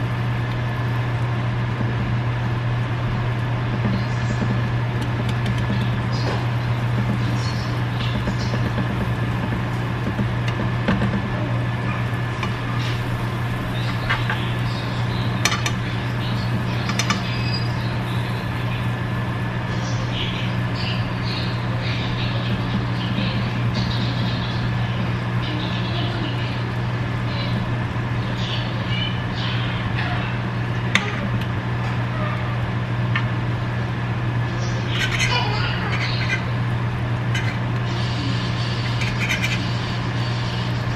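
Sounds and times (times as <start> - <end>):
toast sizzling in butter: 0.0 - 29.3
steady low hum: 0.0 - 40.9.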